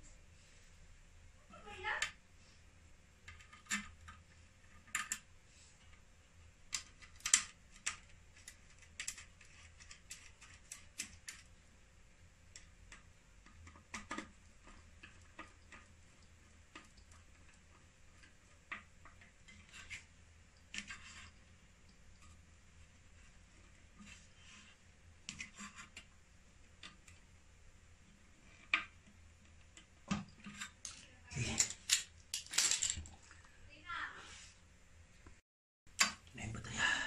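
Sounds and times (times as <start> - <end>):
small metallic clicks and clinks: 30.4 - 33.2.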